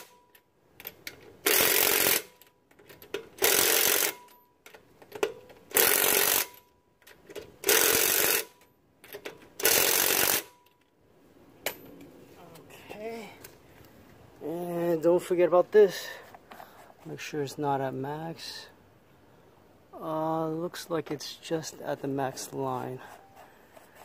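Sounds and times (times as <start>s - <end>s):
impact wrench bursts: 1.4s - 2.4s, 3.0s - 4.4s, 5.7s - 6.6s, 7.6s - 8.6s, 9.6s - 10.6s.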